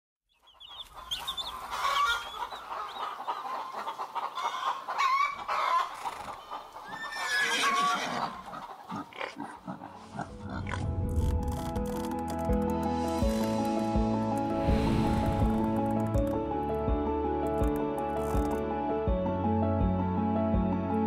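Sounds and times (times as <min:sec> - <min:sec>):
chickens clucking: 0:00.4 - 0:07.2, 0:08.2 - 0:10.8.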